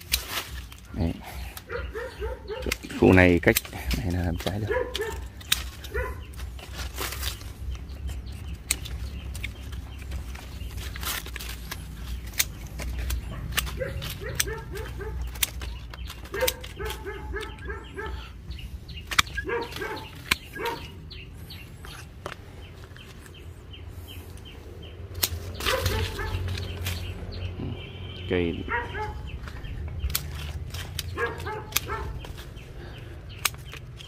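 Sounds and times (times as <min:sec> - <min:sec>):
pruning shears snipping branches: 0:00.0 - 0:34.0
rustle of twigs and leaves: 0:00.0 - 0:34.0.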